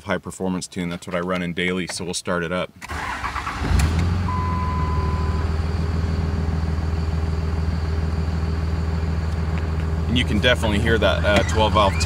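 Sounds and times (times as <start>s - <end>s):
diesel engine idling: 2.9s - 12.0s
steady beep: 4.3s - 5.5s.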